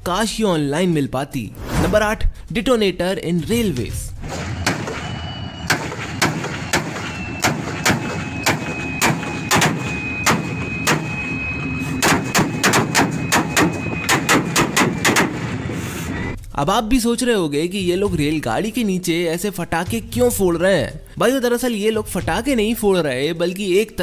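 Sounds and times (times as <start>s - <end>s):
thin high whine: 4.1s - 16.4s
railway detonators banging: 4.2s - 15.8s
diesel locomotive running: 4.4s - 16.4s.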